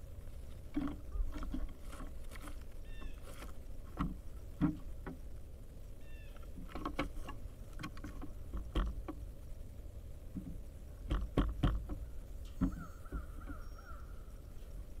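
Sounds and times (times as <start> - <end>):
bird wavering call: 6.0 - 6.4, 12.5 - 14.4
woodpecker knocking: 10.4 - 14.1.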